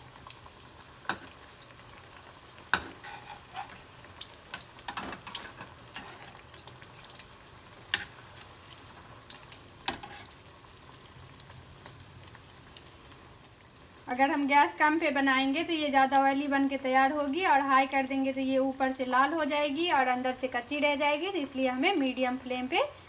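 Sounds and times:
food sizzling in hot oil: 0:00.0 - 0:23.0
spatula scraping: 0:02.7 - 0:04.0, 0:04.9 - 0:06.5, 0:09.9 - 0:10.4.

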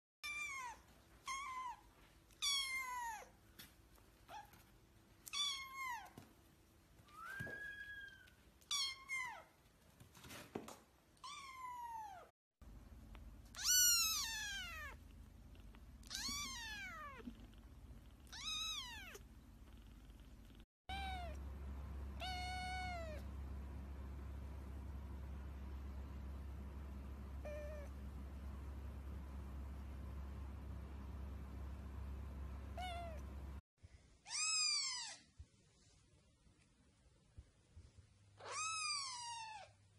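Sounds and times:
kittens meowing: 0:13.5 - 0:15.0, 0:16.0 - 0:17.4, 0:20.9 - 0:21.4, 0:22.2 - 0:23.3.

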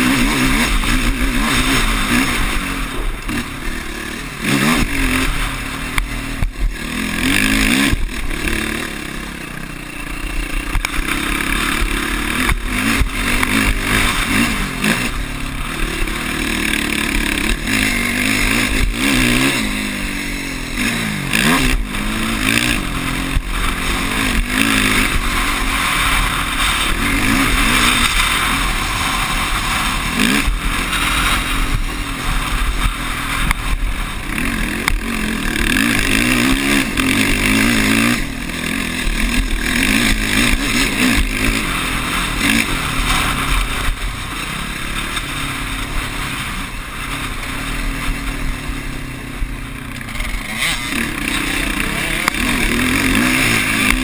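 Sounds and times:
quad engine revving: 0:00.0 - 0:54.0
wind noise on camera: 0:20.8 - 0:49.0.

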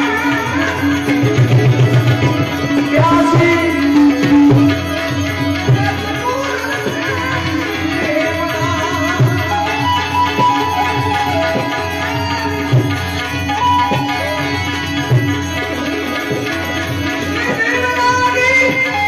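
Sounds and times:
harmonium melody: 0:00.0 - 0:19.0
tabla beat: 0:00.0 - 0:19.0.

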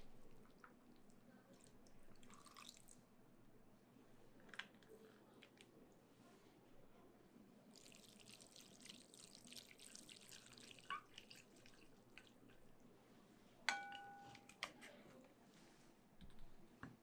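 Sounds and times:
chopstick striking glass bowl: 0:13.7 - 0:14.6.

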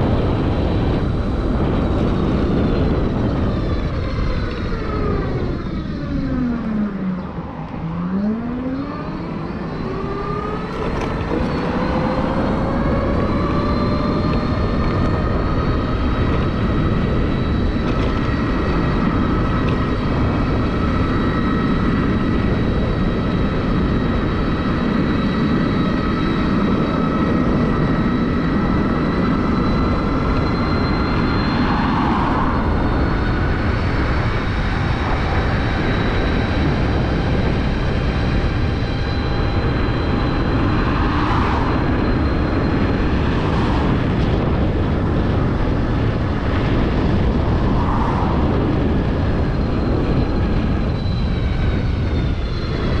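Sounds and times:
electric scooter motor whining: 0:00.0 - 0:53.0
wind and road noise: 0:00.0 - 0:53.0.

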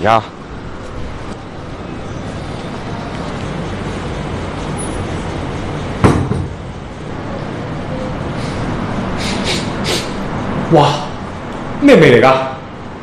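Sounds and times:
traffic-like background noise: 0:00.0 - 0:13.0
door slamming shut: 0:06.0 - 0:06.6.

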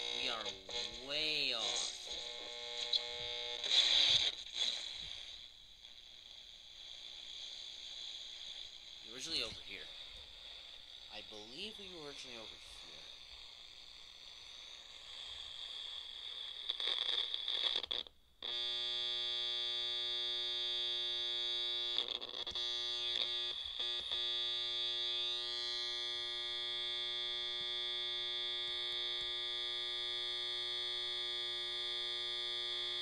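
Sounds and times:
radio speaker static hiss: 0:00.0 - 0:18.7, 0:19.8 - 0:33.0
harsh electronic buzz: 0:00.0 - 0:33.0.

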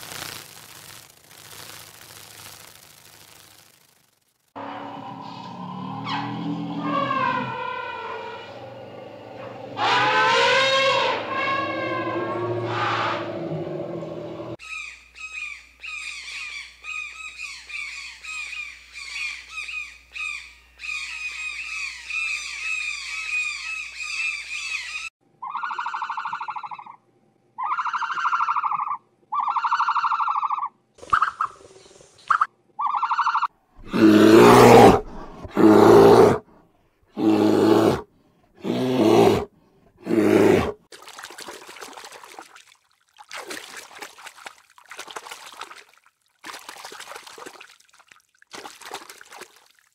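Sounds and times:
faint hiss: 0:00.0 - 0:04.5
drawn-out animal calls: 0:04.6 - 0:08.6
loud animal calls: 0:04.6 - 0:14.9.

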